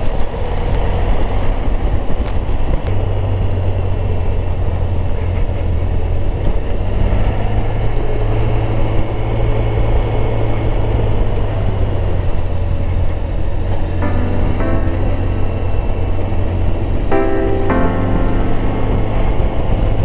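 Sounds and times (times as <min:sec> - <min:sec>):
road noise: 0:00.0 - 0:20.0.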